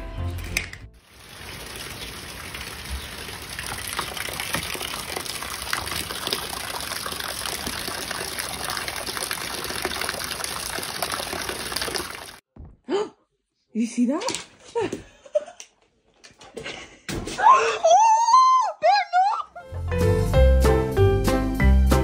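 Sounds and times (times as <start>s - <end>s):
steady rain falling: 1.0s - 12.4s.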